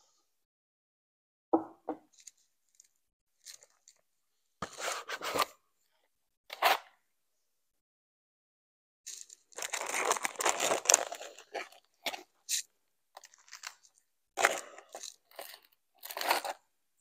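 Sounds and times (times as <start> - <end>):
cardboard packaging rustling: 9.1 - 12.2.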